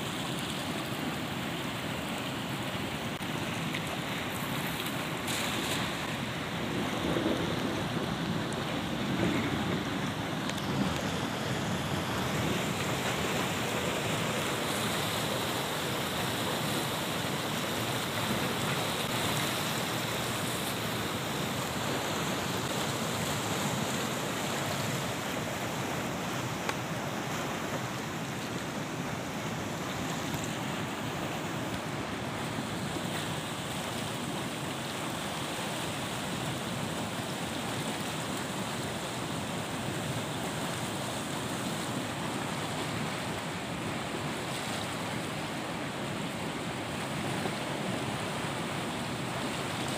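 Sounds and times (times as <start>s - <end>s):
river rushing over rapids: 0.0s - 49.9s.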